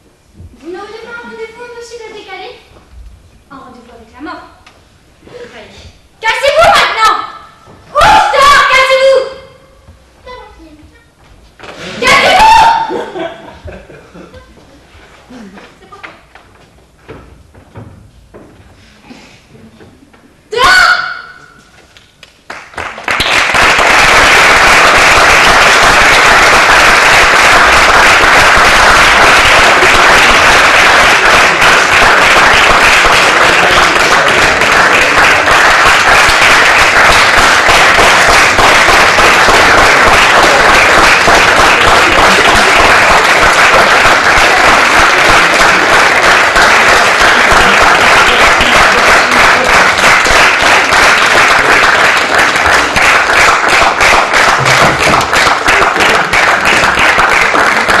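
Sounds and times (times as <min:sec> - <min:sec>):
audience applauding: 0:22.2 - 0:58.0.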